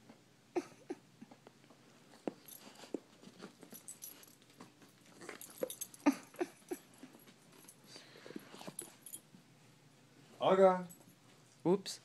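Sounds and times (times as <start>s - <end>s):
dog whimpering: 5.2s - 7.1s.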